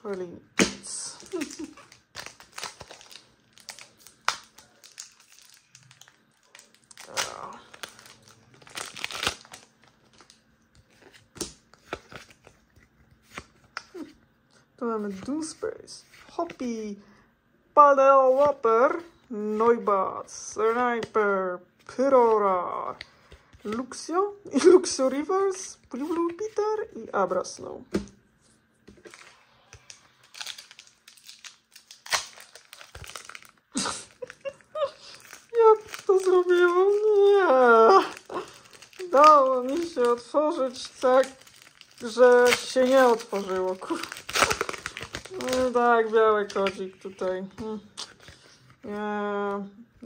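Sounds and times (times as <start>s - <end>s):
foil wrapper crinkling and tearing: 0.8s - 12.5s, 29.0s - 47.3s
cards clicking and rustling: 1.2s - 14.0s, 38.5s - 48.5s.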